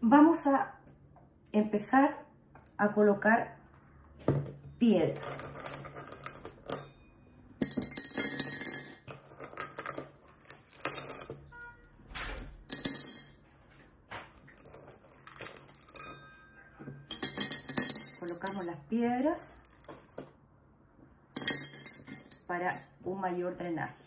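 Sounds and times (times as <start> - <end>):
stones clinking into glass jar: 4.6 - 7.0, 7.6 - 11.6, 12.7 - 13.4, 14.4 - 18.8, 19.5 - 20.3, 21.4 - 22.8.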